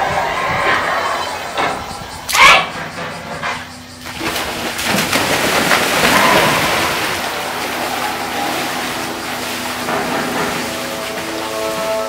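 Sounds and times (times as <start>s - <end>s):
water churning: 3.9s - 12.0s
swimmers splashing into pool: 4.0s - 12.0s.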